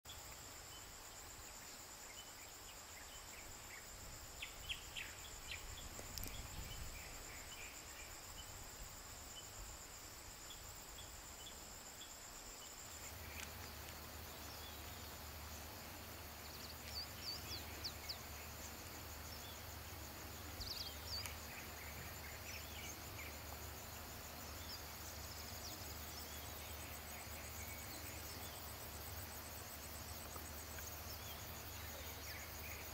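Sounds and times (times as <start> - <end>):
high-pitched insect trill: 0.1 - 32.9.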